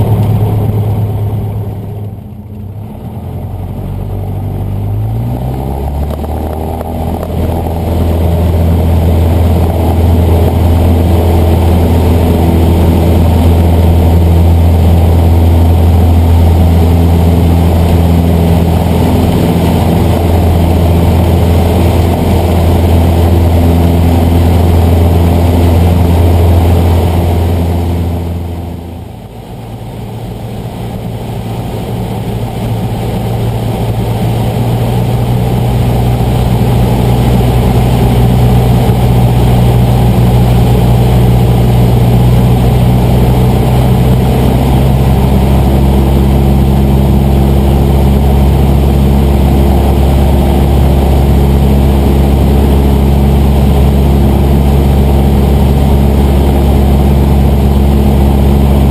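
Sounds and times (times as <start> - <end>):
aircraft engine and propeller drone: 0.0 - 58.9.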